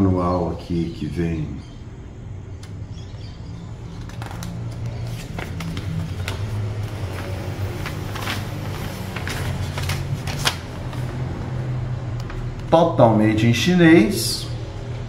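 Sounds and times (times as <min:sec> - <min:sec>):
steady low hum: 0:00.0 - 0:15.0
paper leaflet crinkling: 0:03.8 - 0:11.2.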